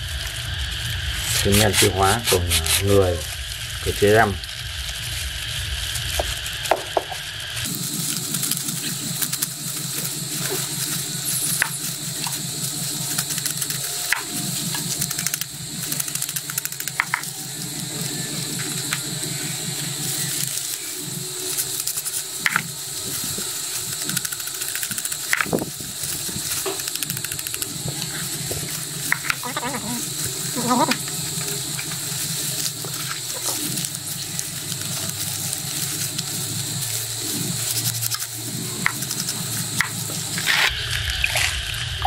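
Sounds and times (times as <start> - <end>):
foil sachets crinkling: 0.0 - 41.6
knife slitting foil: 7.6 - 17.4, 18.4 - 40.8
powder pouring into plastic basin: 18.1 - 41.6.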